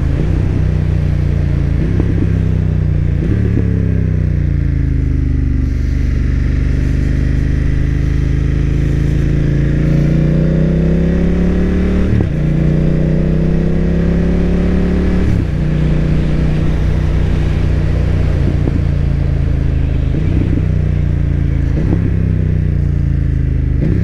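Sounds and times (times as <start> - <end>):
motorcycle engine accelerating: 0.0 - 24.0.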